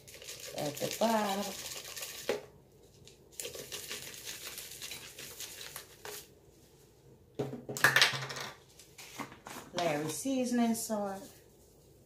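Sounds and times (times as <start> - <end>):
spice shaker rattling: 0.0 - 2.4, 3.4 - 6.0.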